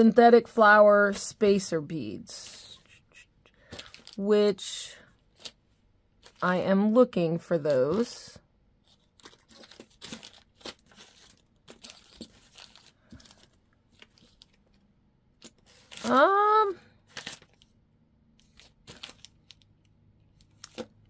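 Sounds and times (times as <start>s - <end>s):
bead packets rustling and crinkling: 3.6s - 6.6s, 7.8s - 14.8s, 15.4s - 16.3s, 17.0s - 17.8s, 18.4s - 21.0s.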